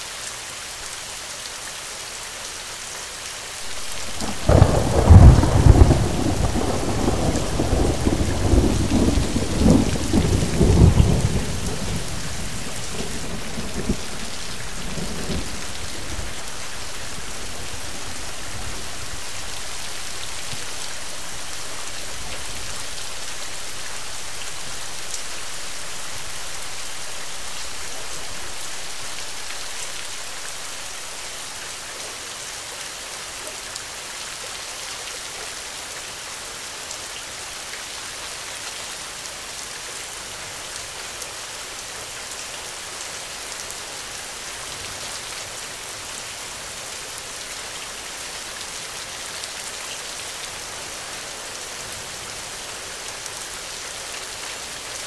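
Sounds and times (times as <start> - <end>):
rain falling in forest: 0.0 - 55.0
low thunder rumble: 3.8 - 19.4.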